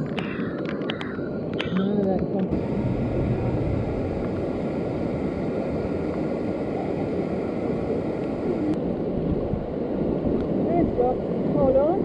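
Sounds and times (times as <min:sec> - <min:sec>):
river water rushing: 0:02.5 - 0:09.0.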